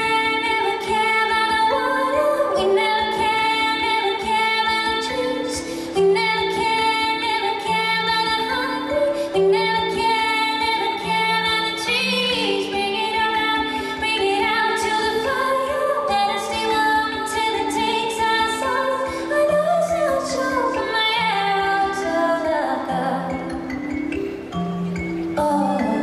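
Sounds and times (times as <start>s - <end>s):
woman singing long notes: 25.4s - 26.0s.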